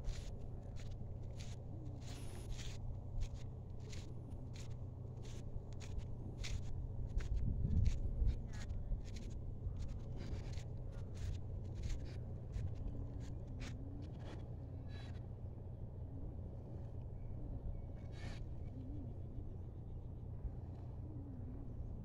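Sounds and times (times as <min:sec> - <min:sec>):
footsteps on sandy path: 0:00.0 - 0:14.6
steady low rumble: 0:00.0 - 0:22.0.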